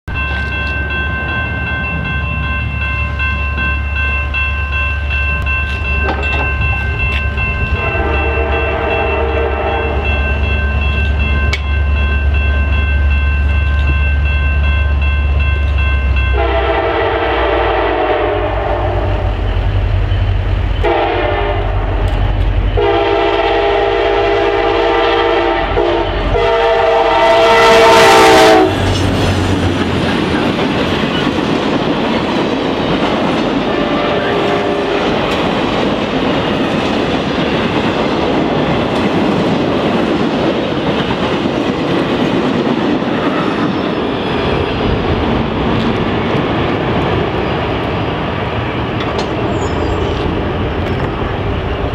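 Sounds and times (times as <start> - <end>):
train wheels rumbling on rails: 0.1 - 51.9
train air horn blasts: 7.7 - 10.1, 16.3 - 19.4, 20.8 - 22.0, 22.8 - 29.0, 33.7 - 35.0.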